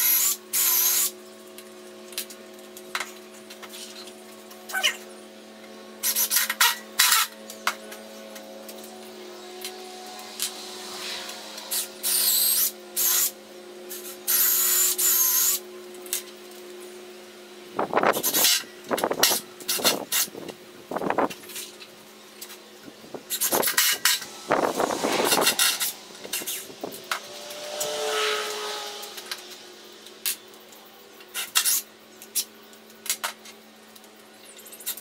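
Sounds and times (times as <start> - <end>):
steady low hum: 0.0 - 34.7.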